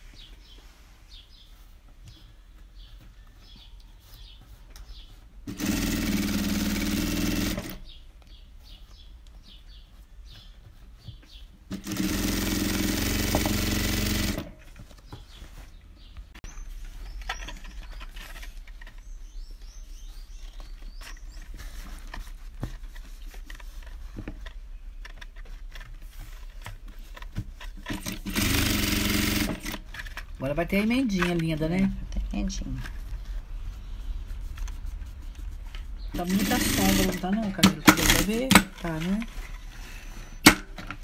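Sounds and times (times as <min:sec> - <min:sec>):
industrial sewing machine running: 0:05.5 - 0:07.8, 0:11.7 - 0:14.5, 0:28.0 - 0:29.8, 0:36.2 - 0:38.6.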